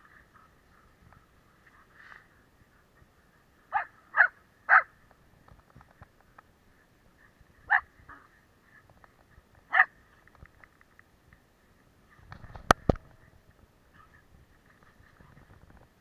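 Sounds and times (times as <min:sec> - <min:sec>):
dog barking: 0:03.7 - 0:04.9, 0:07.7 - 0:07.9, 0:09.7 - 0:09.9.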